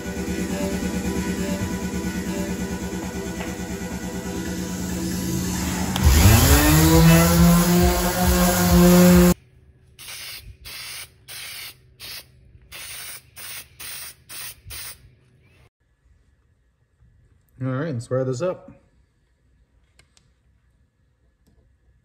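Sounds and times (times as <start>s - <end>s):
orbital sander running: 0.0s - 9.4s
aerosol spray bursts: 10.0s - 15.0s.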